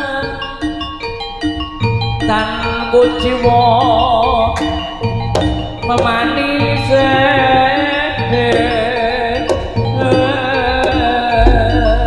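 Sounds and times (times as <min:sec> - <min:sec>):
metallophone notes: 0:00.0 - 0:12.0
wavering melody line: 0:00.0 - 0:12.0
drum strokes: 0:05.2 - 0:12.0.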